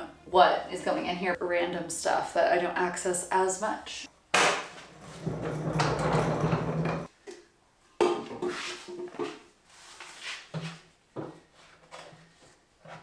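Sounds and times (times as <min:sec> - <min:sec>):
caster wheels rumbling on concrete: 0:05.0 - 0:07.1.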